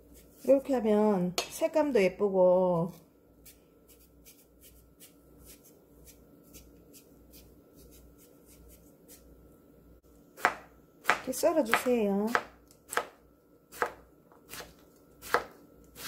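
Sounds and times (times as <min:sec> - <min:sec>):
knife scraping cucumber skin: 0:03.4 - 0:09.2.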